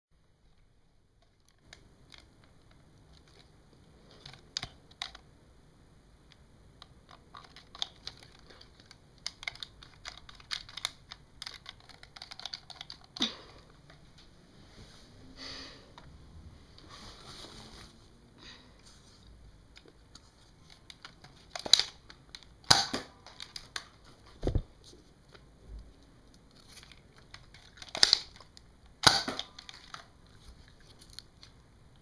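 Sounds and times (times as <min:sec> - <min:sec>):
sharp plastic snap: 0:22.6 - 0:23.9, 0:29.0 - 0:30.0
toy blaster plastic clicks: 0:27.3 - 0:28.4, 0:29.0 - 0:30.1.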